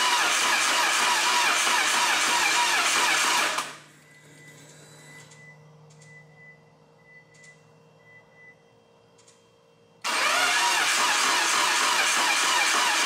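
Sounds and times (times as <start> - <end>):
faint steady hum: 3.7 - 10.1
loud turbo engine: 10.1 - 13.0.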